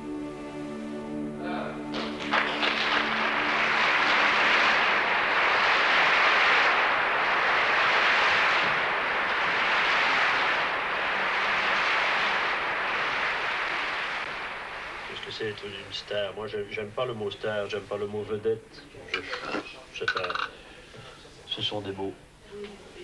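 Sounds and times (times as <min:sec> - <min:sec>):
audience applauding: 0:01.9 - 0:16.2.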